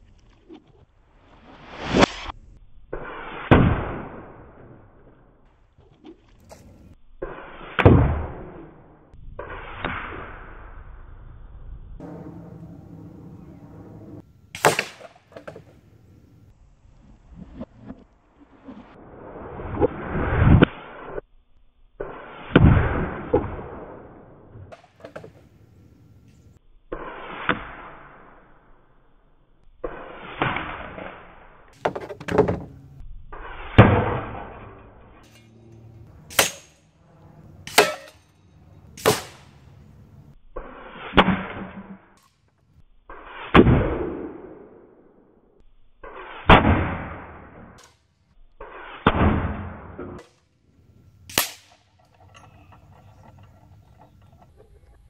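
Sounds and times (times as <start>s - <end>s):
air rifle shots: 14.6s - 15.7s, 36.3s - 36.9s, 37.6s - 38.2s, 39.0s - 39.8s, 51.3s - 51.9s
pellet striking steel target: 14.6s - 15.7s, 33.6s - 37.0s, 37.6s - 39.8s, 51.3s - 51.9s.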